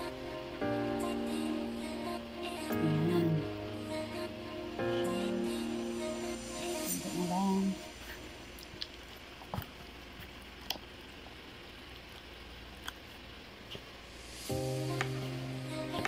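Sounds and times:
background music: 0.0s - 8.9s, 14.2s - 16.0s.

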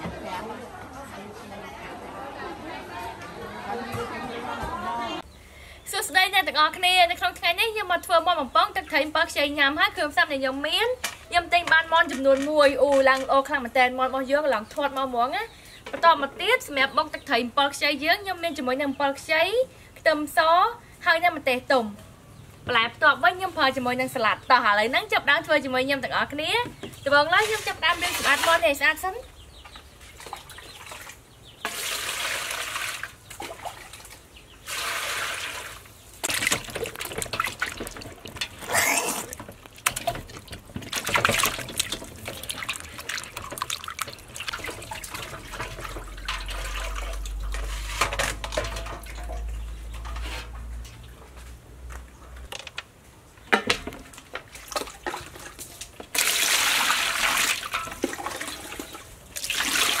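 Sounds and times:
water splashing and sloshing: 29.6s - 51.6s, 53.8s - 60.0s
water pouring into metal basin: 31.7s - 33.9s, 34.7s - 47.9s, 56.1s - 60.0s.

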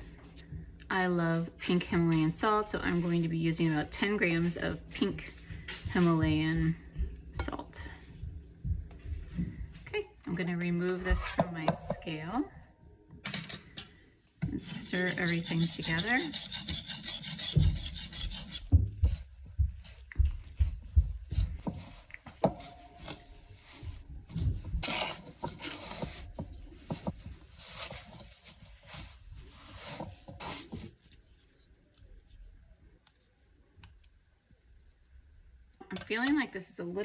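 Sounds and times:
whisk scraping ceramic bowl: 14.5s - 19.2s, 24.8s - 30.9s.

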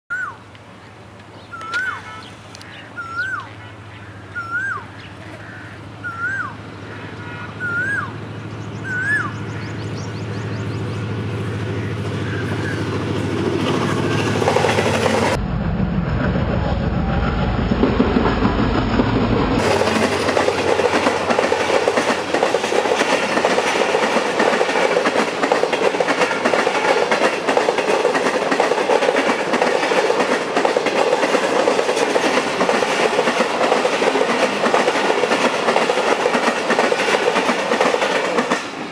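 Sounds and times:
bird whistling rising note: 0.1s - 0.4s, 1.5s - 2.4s, 3.0s - 3.5s, 4.3s - 5.0s, 6.0s - 6.6s, 7.6s - 11.0s
diesel locomotive rumble: 0.4s - 38.9s
train coaches clattering over rails: 7.7s - 15.4s, 17.6s - 38.9s.

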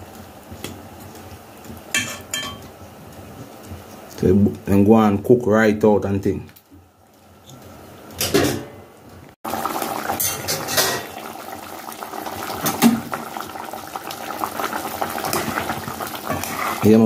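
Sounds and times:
sauce boiling and popping: 0.0s - 4.2s, 9.4s - 17.0s.

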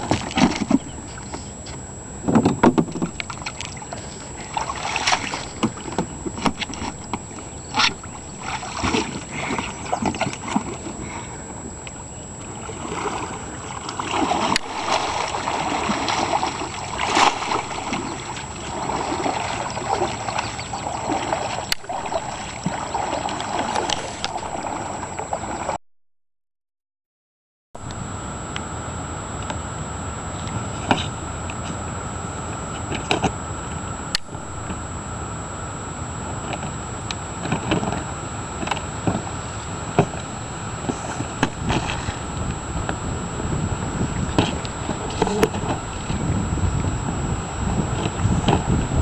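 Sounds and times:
faint high whine: 0.0s - 25.8s, 27.8s - 49.0s
paddle strokes splashing: 2.7s - 11.1s, 12.5s - 25.8s, 37.4s - 49.0s.

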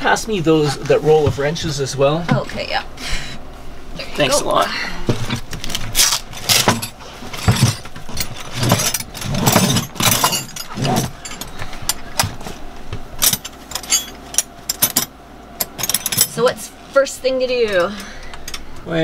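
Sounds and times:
metal wrenches clinking: 6.0s - 12.4s, 13.2s - 16.5s.

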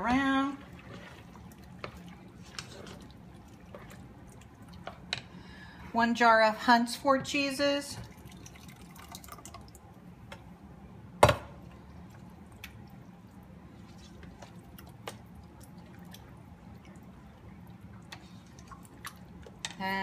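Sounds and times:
spoon stirring meat sauce: 0.0s - 5.1s.

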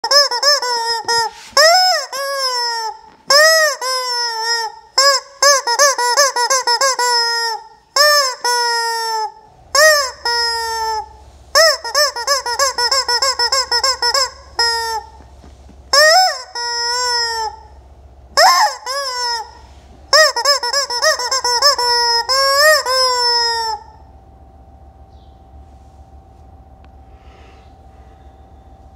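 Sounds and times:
rubber chicken toy squawking: 0.0s - 15.3s, 15.9s - 17.7s, 18.4s - 24.0s.

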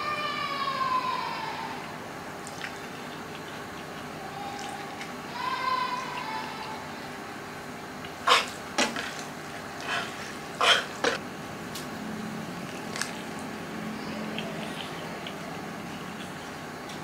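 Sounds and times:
noodle slurping: 8.0s - 11.2s.

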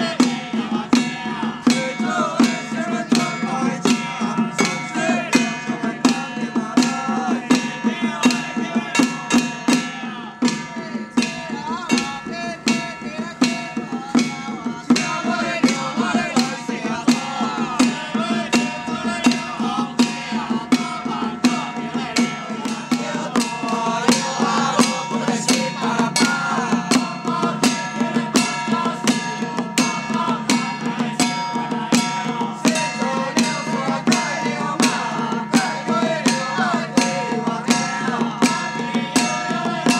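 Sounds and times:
barrel drums struck with sticks: 0.0s - 39.9s.

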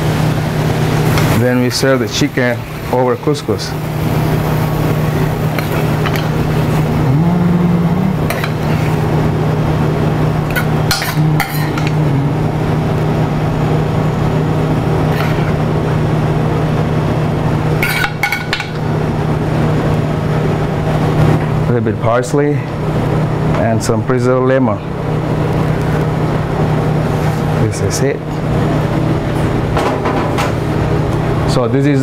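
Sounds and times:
low machine hum: 0.0s - 32.0s.

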